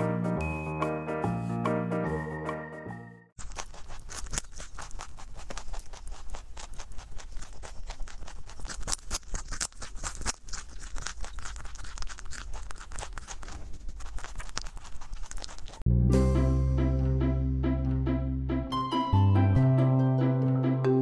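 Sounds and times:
rabbit crunching carrot: 0:03.4 - 0:15.9.

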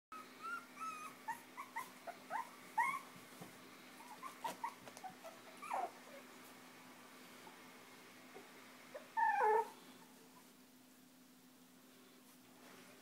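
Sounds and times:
puppies squeaking and whimpering: 0:00.1 - 0:03.1, 0:04.0 - 0:06.2, 0:09.0 - 0:09.8
puppy whining: 0:00.1 - 0:03.2, 0:04.0 - 0:06.4, 0:08.3 - 0:10.6.

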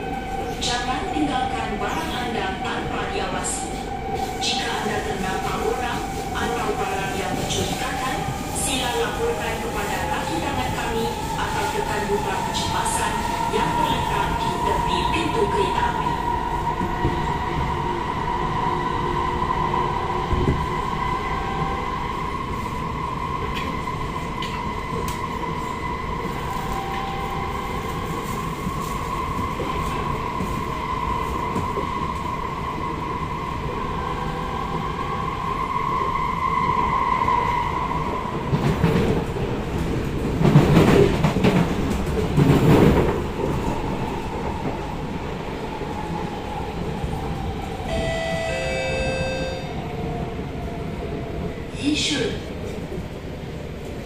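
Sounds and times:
train traction whine: 0:46.0 - 0:50.3.

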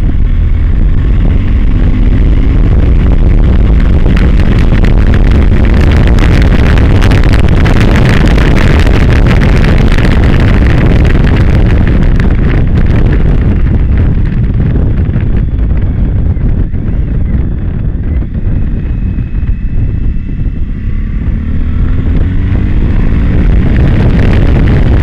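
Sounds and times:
motorcycle engine running: 0:00.0 - 0:25.0
wind buffeting microphone: 0:00.0 - 0:25.0.

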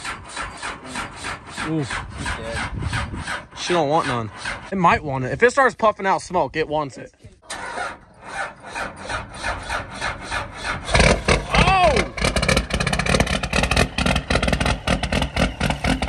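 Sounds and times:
diesel engine running rough: 0:00.0 - 0:05.0, 0:07.5 - 0:16.0
rising and falling whoop: 0:11.5 - 0:12.1.

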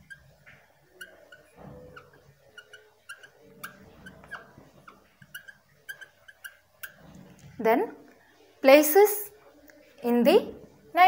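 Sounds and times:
marker squeaking on glass: 0:00.0 - 0:07.6.

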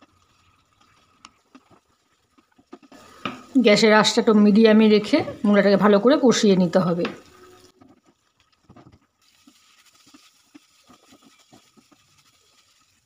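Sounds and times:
wooden spatula scraping frying pan: 0:08.8 - 0:13.0.

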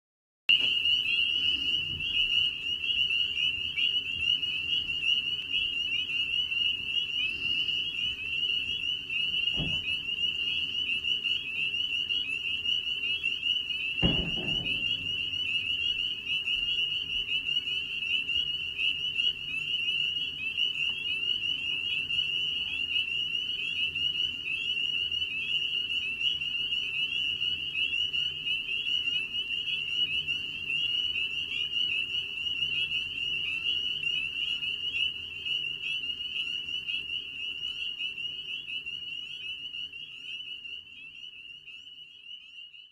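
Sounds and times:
chorus of frogs peeping: 0:00.5 - 0:42.9
dull thumps: 0:14.0 - 0:15.7.

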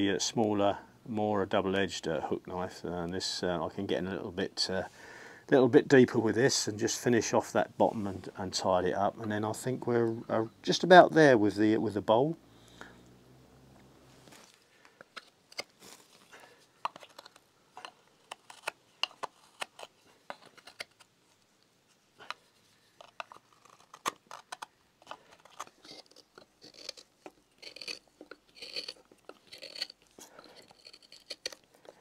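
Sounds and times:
knife scraping wood: 0:14.3 - 0:21.1, 0:22.3 - 0:32.0
knife carving wood: 0:16.8 - 0:32.0.

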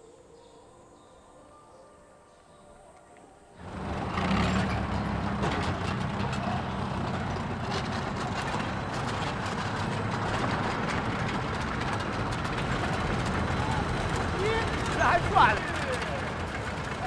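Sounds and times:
light rattling: 0:03.6 - 0:17.0
vehicle engine droning: 0:03.6 - 0:17.0.

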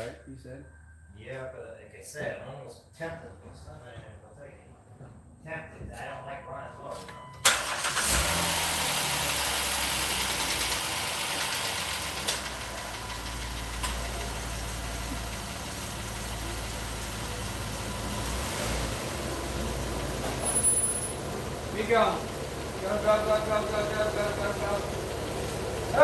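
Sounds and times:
car engine idling: 0:07.4 - 0:26.0.

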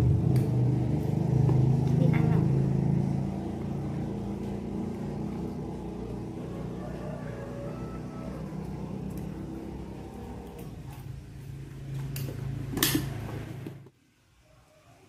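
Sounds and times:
low mechanical hum: 0:00.0 - 0:14.2.

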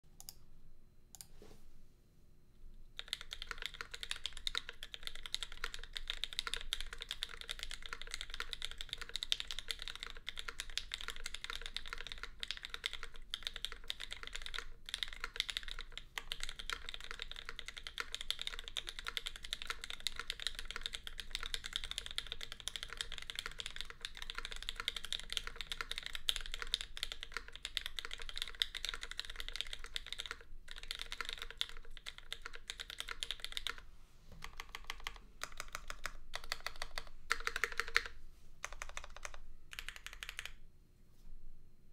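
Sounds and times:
mechanical keyboard typing: 0:03.0 - 0:33.8, 0:34.4 - 0:40.6.

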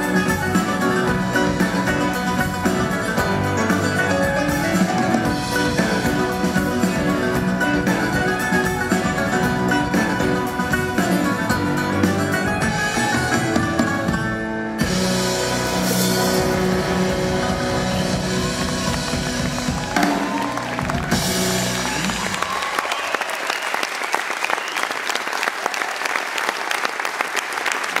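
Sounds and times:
live band playing: 0:00.0 - 0:23.1
audience applauding: 0:15.7 - 0:28.0.

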